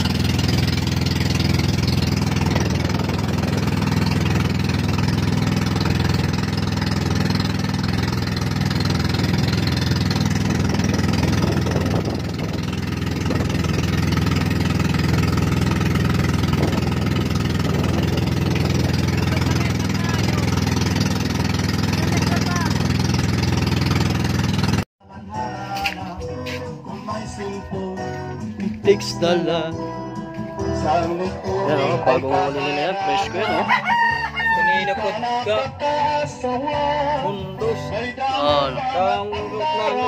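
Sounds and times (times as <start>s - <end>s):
boat engine running: 0.0s - 24.9s.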